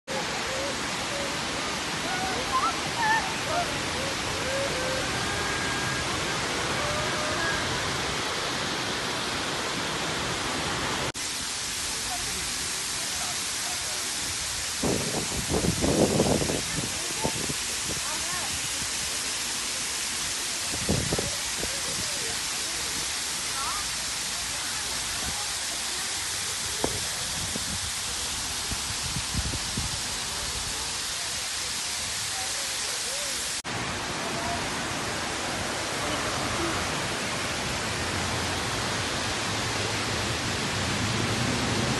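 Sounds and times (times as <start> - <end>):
water cascading down concrete steps: 0.1 - 41.9
hiss of spray jets: 11.1 - 33.7.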